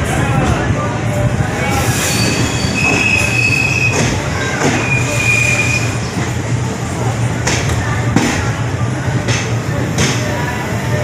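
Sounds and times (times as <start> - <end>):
low rumble of rolling train: 0.0 - 11.0
train wheels squealing on rails: 1.6 - 6.2.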